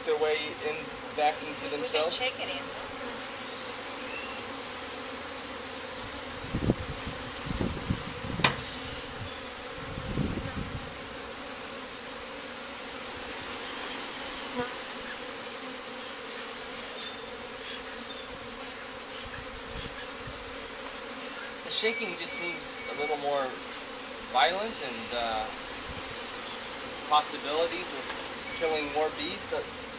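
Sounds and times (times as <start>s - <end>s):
honeybees buzzing: 0.0s - 29.9s
low knocks and thumps: 8.3s - 8.7s.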